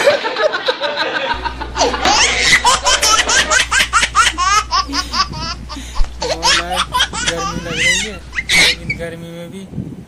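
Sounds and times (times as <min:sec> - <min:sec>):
person laughing heartily: 0:00.0 - 0:08.9
faint low hum: 0:01.3 - 0:09.3.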